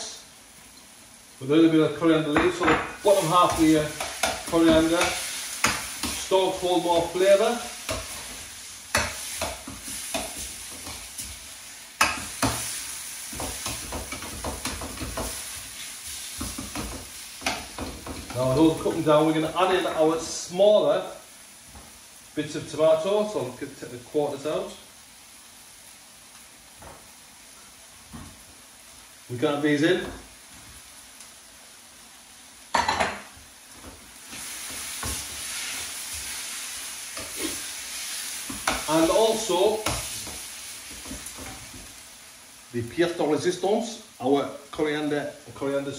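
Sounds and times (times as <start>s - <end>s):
chicken sizzling in a frying pan: 0.0s - 45.9s
spoon scraping and knocking pan: 2.3s - 7.2s, 7.8s - 11.4s, 12.0s - 18.4s, 32.7s - 41.9s.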